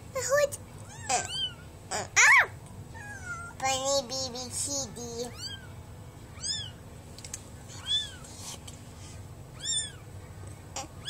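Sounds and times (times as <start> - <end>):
kitten mewing: 0.9 - 3.6, 9.6 - 10.0.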